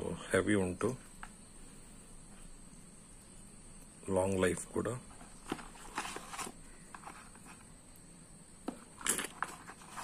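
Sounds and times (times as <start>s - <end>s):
cardboard box rustling: 5.2s - 7.6s, 9.2s - 10.0s.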